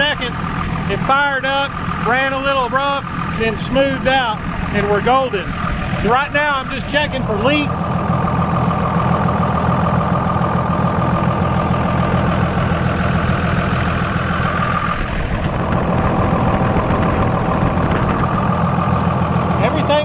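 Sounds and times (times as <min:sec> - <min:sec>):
diesel engine idling: 0:00.0 - 0:20.0
thin steady whine: 0:10.8 - 0:20.0.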